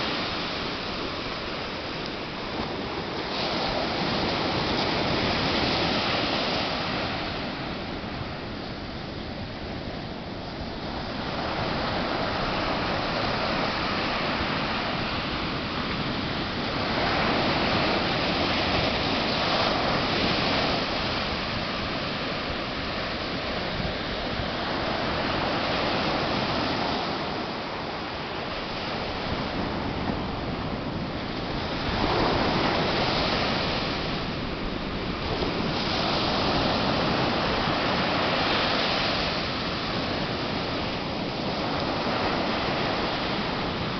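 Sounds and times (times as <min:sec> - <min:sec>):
ocean surf breaking on beach: 0:00.0 - 0:43.9.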